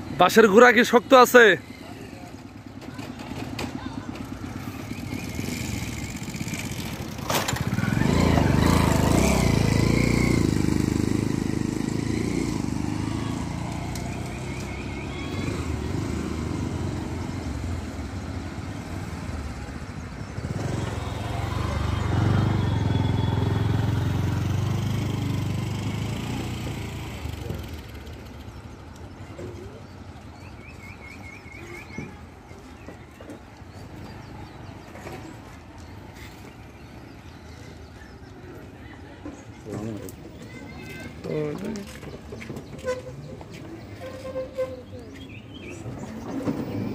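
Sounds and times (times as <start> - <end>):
vehicle engines passing by: 0.0 - 46.9.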